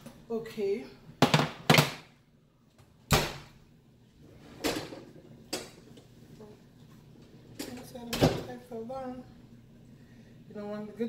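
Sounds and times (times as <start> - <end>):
kitchenware knocks and clunks: 1.2 - 2.1, 4.5 - 5.8.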